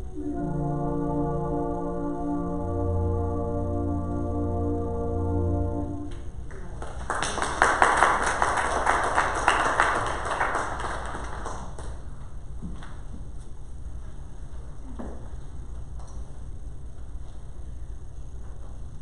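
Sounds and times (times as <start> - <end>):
small group clapping: 6.1 - 12.1.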